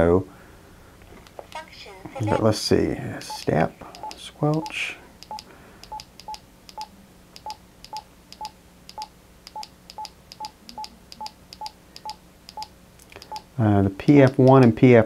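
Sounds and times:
radio key beeps: 3.2s - 6.9s.

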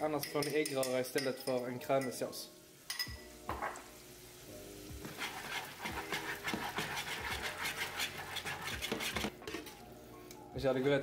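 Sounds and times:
wet squelching of pasta stirring: 4.9s - 9.8s.

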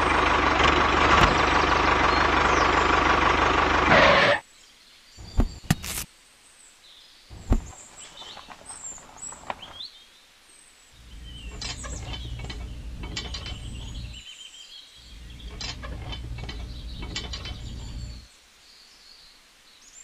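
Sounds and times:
trailer hitch clicks: 0.0s - 3.4s, 11.2s - 14.2s, 15.0s - 18.2s
tractor engine running: 0.0s - 4.4s, 7.3s - 9.8s, 11.0s - 14.2s, 15.0s - 18.3s
faint birds chirping: 0.0s - 20.0s.

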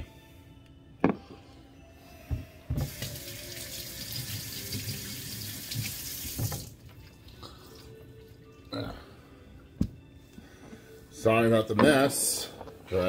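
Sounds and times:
tap water running: 2.8s - 6.9s.

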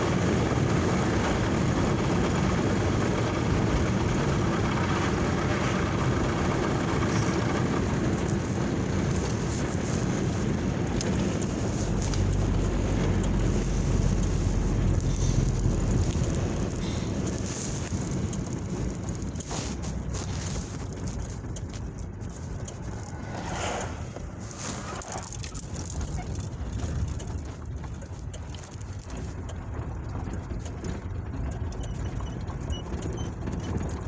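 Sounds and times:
wind or road noise hiss: 0.0s - 26.1s
car engine and road rumble: 0.0s - 34.0s.

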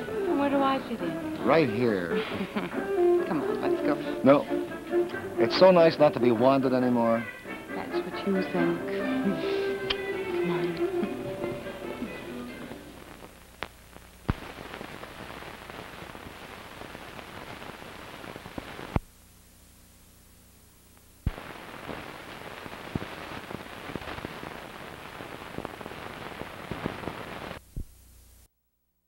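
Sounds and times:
record crackle and pops: 0.0s - 29.0s.

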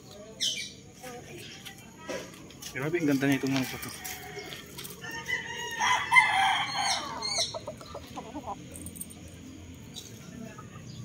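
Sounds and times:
rooster crowing: 3.6s - 7.6s
rooster clucking: 5.9s - 8.7s.

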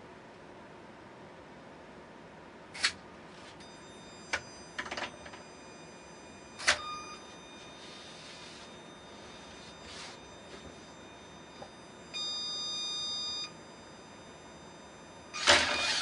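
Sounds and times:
high servo whine: 3.8s - 16.0s.

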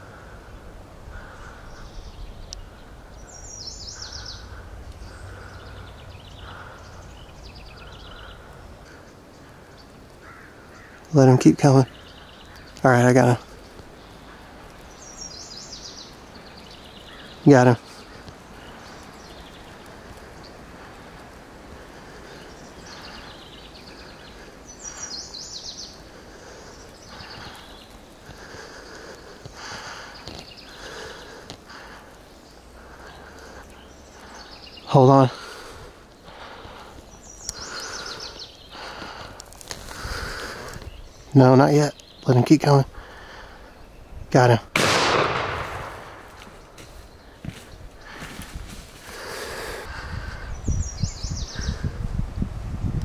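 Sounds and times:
soft low repeating bird note: 0.0s - 11.2s
small birds trilling: 0.0s - 52.1s.

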